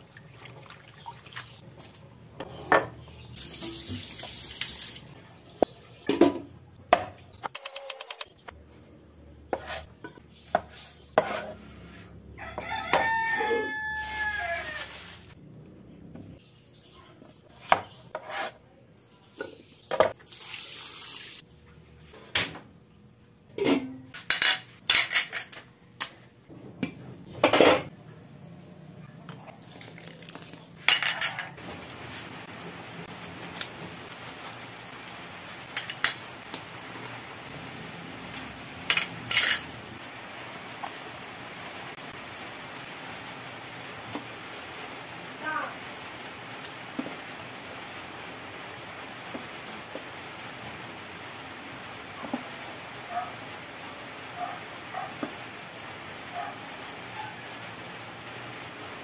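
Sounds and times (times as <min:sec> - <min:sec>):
water running: 0:00.0 - 0:02.0, 0:03.3 - 0:05.2, 0:20.2 - 0:21.4, 0:29.3 - 0:30.9
pots and utensils clattering: 0:06.0 - 0:07.2, 0:23.5 - 0:25.6, 0:27.4 - 0:27.9, 0:30.8 - 0:31.6, 0:38.8 - 0:39.8
rooster crowing: 0:12.4 - 0:15.1.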